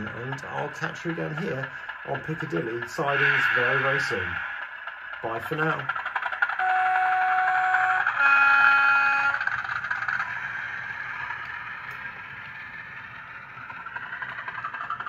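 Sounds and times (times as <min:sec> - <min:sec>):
model train two-tone horn: 0:06.6 - 0:09.6.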